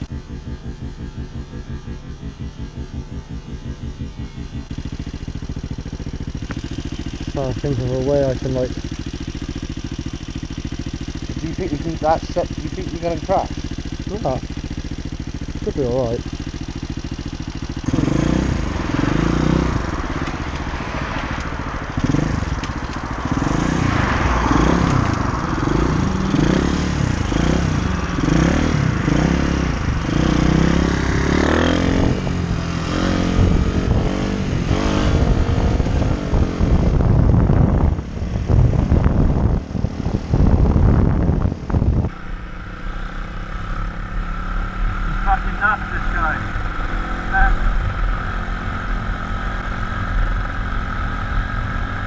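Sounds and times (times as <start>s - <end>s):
small motorcycle engine revving: 0.0s - 52.0s
wind rushing over microphone: 17.9s - 42.2s.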